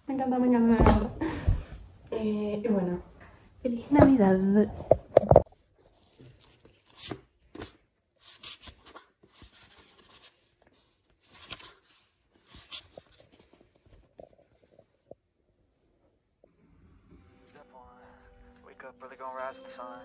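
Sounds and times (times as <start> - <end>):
book pages turning: 5.2 - 15.0.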